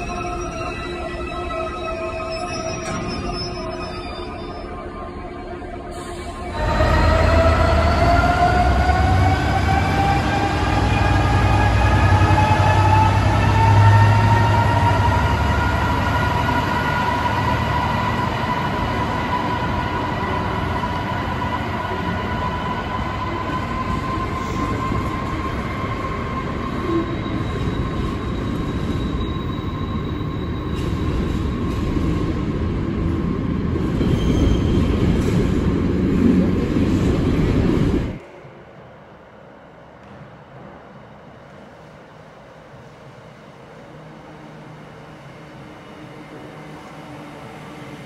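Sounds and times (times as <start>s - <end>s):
locomotive whine: 0.0s - 32.7s.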